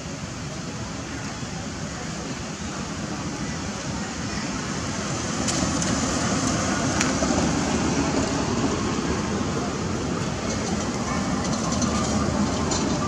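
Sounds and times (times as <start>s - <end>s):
rushing outdoor noise: 0.0s - 13.0s.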